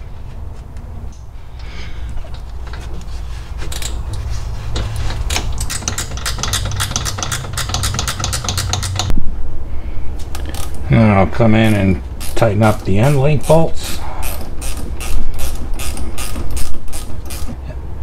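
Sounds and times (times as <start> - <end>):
steady low hum: 0.0 - 18.0
socket ratchet clicking: 5.3 - 9.1, 13.8 - 17.5.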